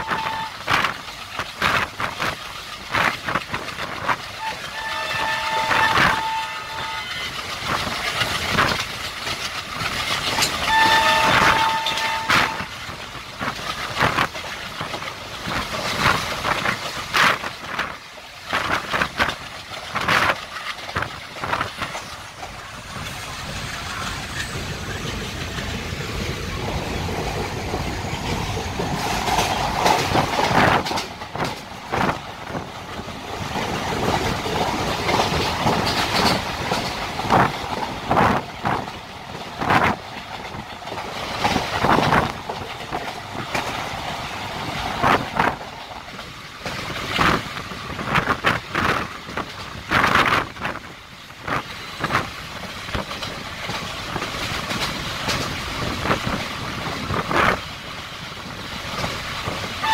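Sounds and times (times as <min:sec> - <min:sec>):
loud rail clacks: 0:00.0 - 0:59.9
train wheels rolling on rails: 0:00.0 - 0:59.9.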